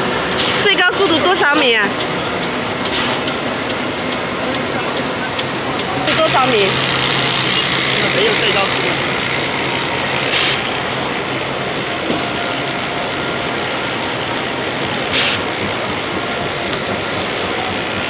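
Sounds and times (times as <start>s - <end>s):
machine clattering: 0.0s - 18.0s
short hisses: 3.0s - 3.2s.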